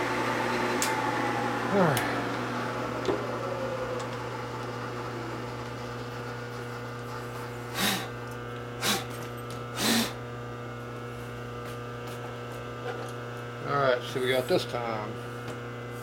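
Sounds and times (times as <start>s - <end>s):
electrical hum of machinery: 0.0s - 16.0s
short hissing bursts: 7.7s - 8.1s, 8.8s - 9.1s, 9.8s - 10.2s.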